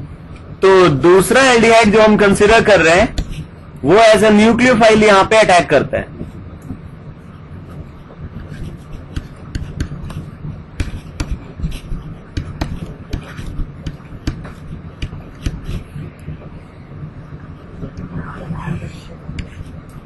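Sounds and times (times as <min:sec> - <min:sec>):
steady low hum: 0:00.0 - 0:20.0
stylus tapping on tablet: 0:09.1 - 0:15.8.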